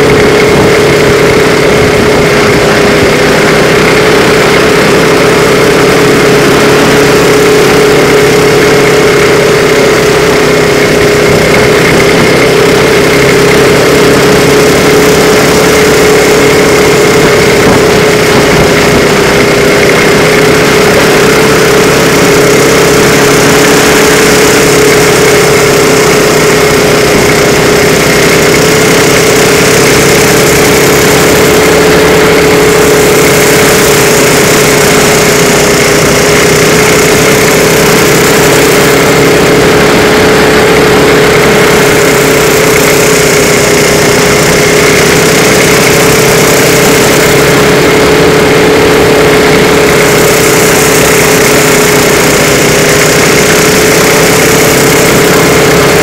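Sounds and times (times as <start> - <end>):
constant rush of noise: 0.0 - 56.0
racing car engine at high speed: 0.0 - 56.0.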